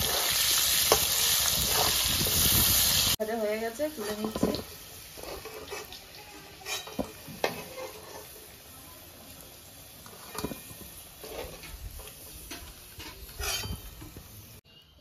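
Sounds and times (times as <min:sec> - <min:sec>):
oil sizzling: 0:00.0 - 0:14.6
metal spoon clinking on wok: 0:12.5 - 0:14.1.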